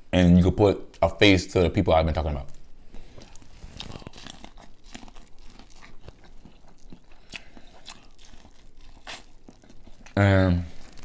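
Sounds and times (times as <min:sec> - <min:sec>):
person chewing corn crunchily: 0:02.9 - 0:11.0.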